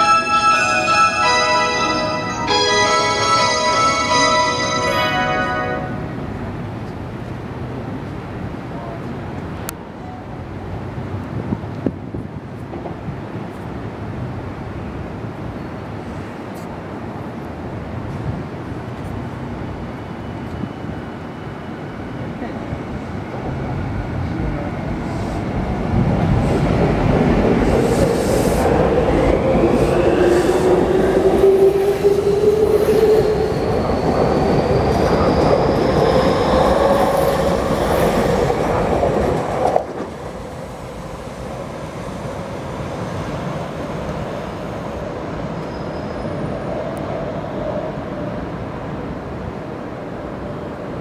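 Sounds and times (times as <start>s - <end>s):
wheels on rail: 18.0s - 49.0s.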